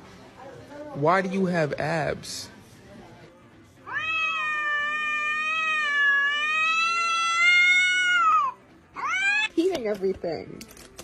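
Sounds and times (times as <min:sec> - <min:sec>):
cat yowling: 0:03.8 - 0:09.5.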